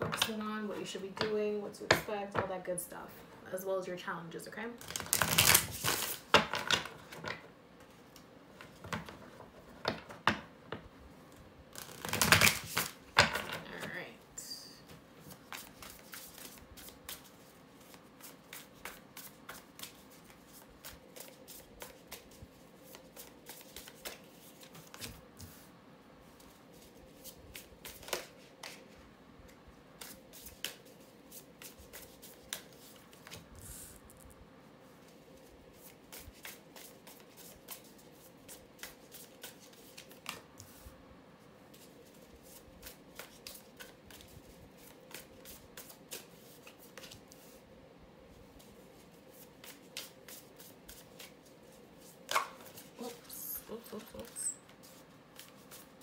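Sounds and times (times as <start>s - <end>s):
faint steady hum: 0.0s - 56.0s
cards shuffling and clicking: 11.8s - 14.0s, 15.2s - 25.6s, 26.8s - 28.9s, 41.7s - 47.5s.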